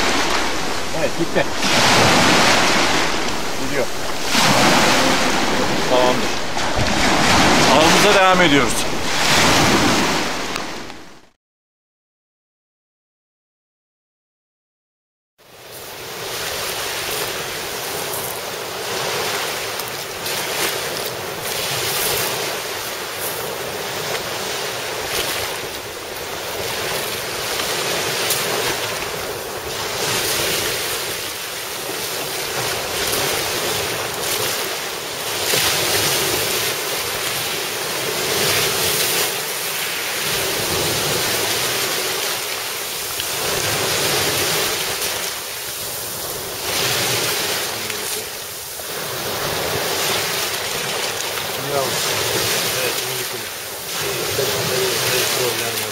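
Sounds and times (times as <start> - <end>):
wind buffeting microphone: 0.0 - 11.2
sea surf washing onto shore: 0.0 - 11.3, 15.4 - 55.9.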